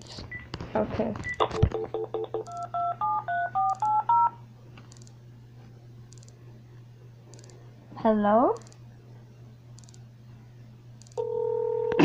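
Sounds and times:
touch-tone dialing tones: 1.2s - 4.4s
phone keypad beeps: 2.4s - 4.4s.

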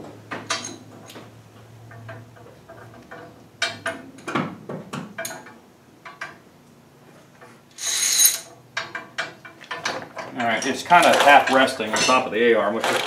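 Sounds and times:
metal parts clicking and clinking: 7.4s - 13.0s.

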